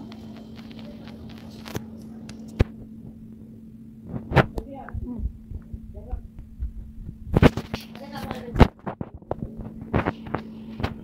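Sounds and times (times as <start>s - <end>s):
faint voices: 0.0s - 3.8s
low electrical hum: 0.0s - 11.0s.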